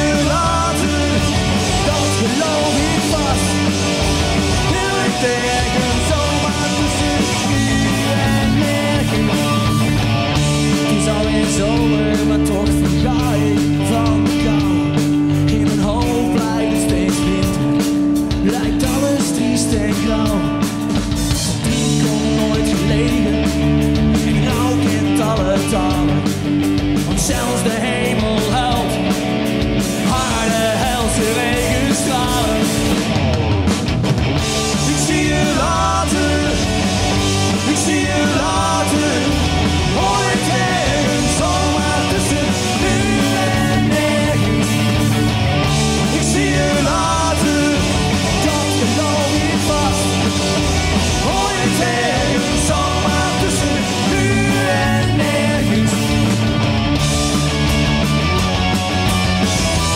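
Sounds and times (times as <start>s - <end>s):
punk rock band playing live: 0.0s - 59.9s.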